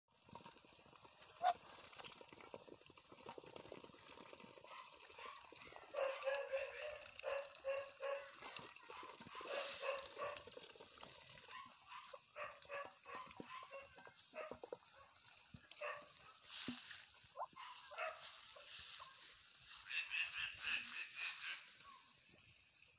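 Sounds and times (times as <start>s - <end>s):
duck bills clicking and slurping: 0.3s - 16.3s
ducks calling: 19.7s - 22.0s.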